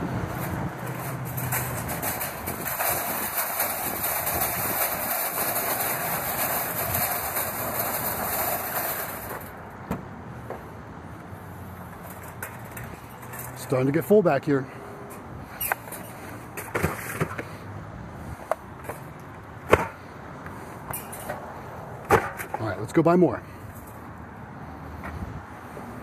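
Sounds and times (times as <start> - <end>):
shopping cart rattling over asphalt: 0.3 - 9.6.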